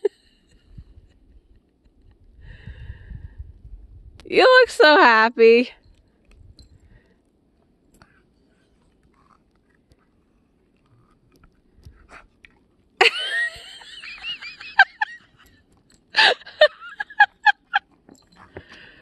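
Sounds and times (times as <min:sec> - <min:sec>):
person laughing: 0:13.0 - 0:15.3, 0:16.2 - 0:17.8.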